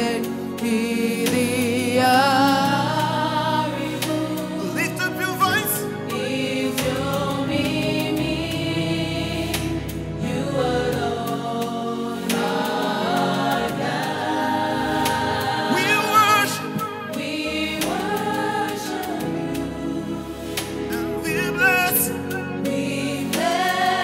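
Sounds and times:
man singing into a microphone: 0:00.0 - 0:02.8, 0:04.6 - 0:06.0, 0:15.7 - 0:17.2, 0:20.9 - 0:22.6
choir voices: 0:00.0 - 0:24.0
sustained backing chords: 0:00.0 - 0:24.0.

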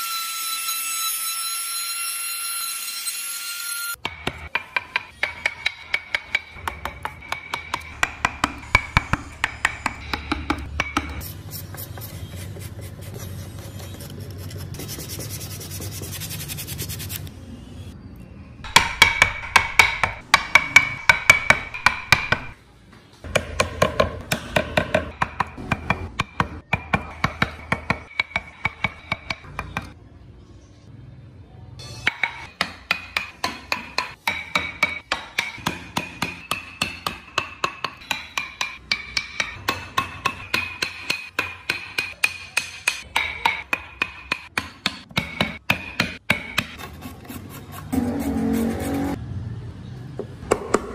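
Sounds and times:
mallet striking carving chisel: 0:04.0 - 0:11.8, 0:18.7 - 0:22.6, 0:23.3 - 0:30.0, 0:32.0 - 0:48.7
chisel scraping wood: 0:46.6 - 0:49.2.

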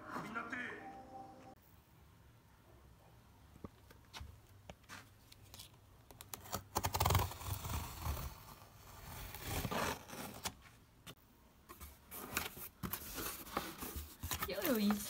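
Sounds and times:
cardboard rustling and clicking: 0:11.7 - 0:15.0.

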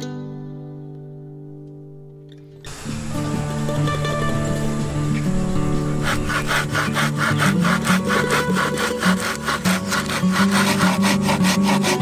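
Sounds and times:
hand saw cutting log: 0:02.7 - 0:12.0.

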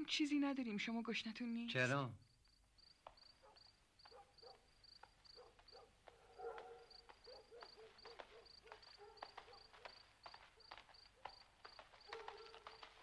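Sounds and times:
faint crickets chirping: 0:00.0 - 0:13.0
footsteps on paving: 0:02.8 - 0:13.0.

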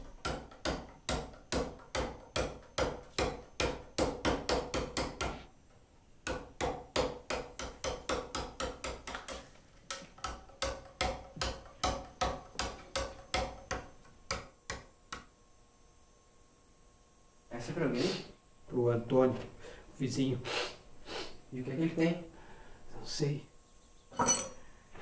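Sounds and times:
hammer tapping chisel on stone: 0:06.2 - 0:15.3.

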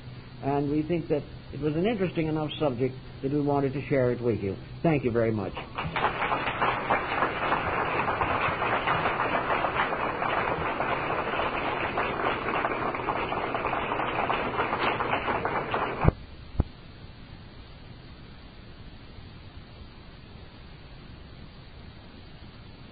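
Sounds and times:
audience applauding: 0:05.6 - 0:16.2.

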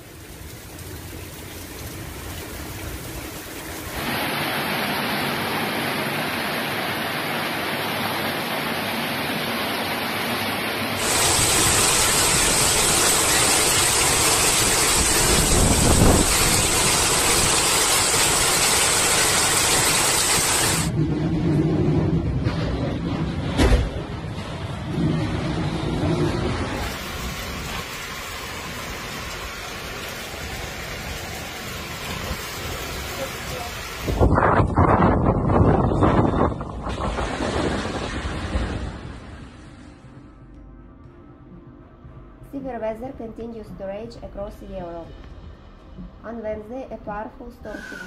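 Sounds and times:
wind-driven heavy rain: 0:00.0 - 0:40.3
low thump of wind gust: 0:20.9 - 0:26.8, 0:34.0 - 0:39.8.

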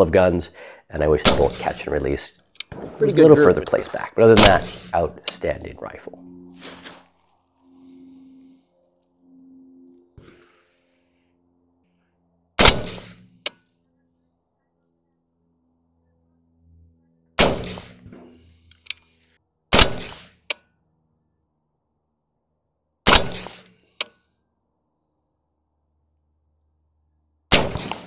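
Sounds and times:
suppressed rifle shots: 0:12.6 - 0:13.3, 0:17.4 - 0:18.1, 0:19.7 - 0:20.3, 0:23.0 - 0:23.7, 0:27.5 - 0:28.0.

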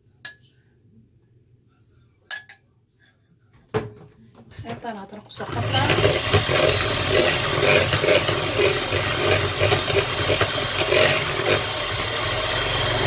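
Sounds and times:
electric hand mixer running: 0:05.4 - 0:13.0.

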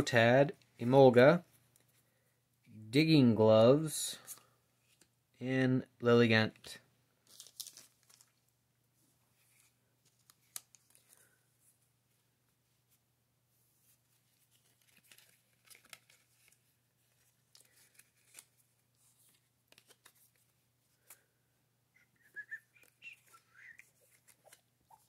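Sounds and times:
paper cards rustling and tapping: 0:07.2 - 0:08.4, 0:14.2 - 0:21.3, 0:22.8 - 0:25.0.

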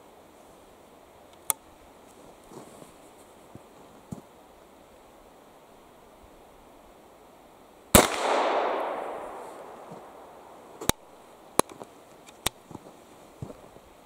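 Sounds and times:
rifle shot with echo: 0:07.9 - 0:11.1.

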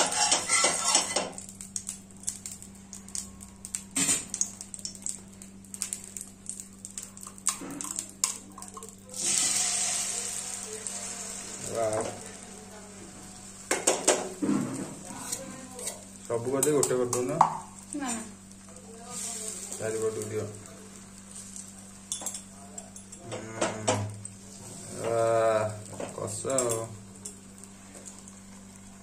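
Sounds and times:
spatula scraping frying pan: 0:00.0 - 0:01.4, 0:23.2 - 0:25.4
egg sizzling in hot oil: 0:00.0 - 0:29.0.

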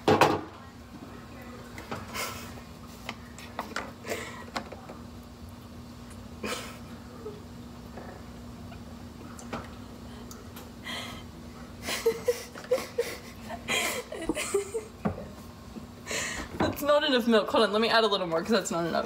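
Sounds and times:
stifled laughter: 0:11.8 - 0:14.9.

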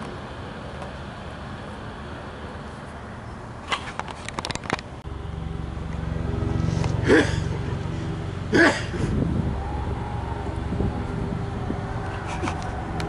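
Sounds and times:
sharp clicks and rubbing: 0:03.6 - 0:05.0, 0:12.0 - 0:13.0
steady low hum: 0:04.9 - 0:13.0.

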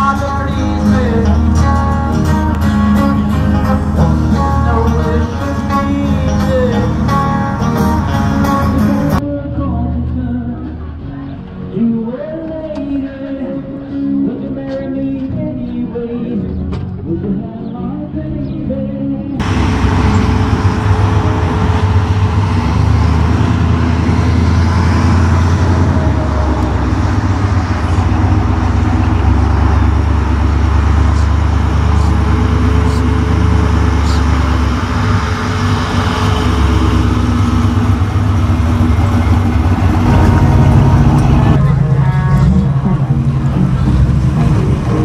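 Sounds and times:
another car engine: 0:00.0 - 0:09.2, 0:19.4 - 0:45.0
car engine driving past: 0:19.4 - 0:45.0.

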